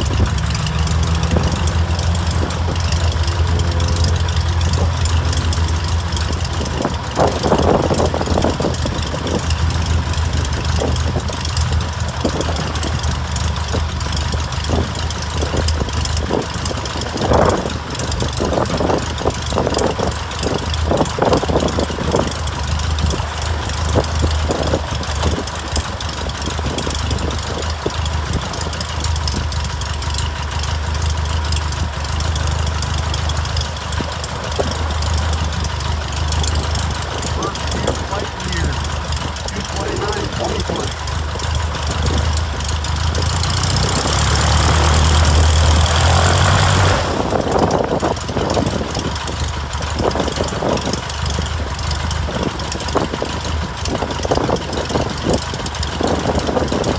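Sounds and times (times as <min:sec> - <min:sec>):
light plane engine idling: 0:00.0 - 0:56.9.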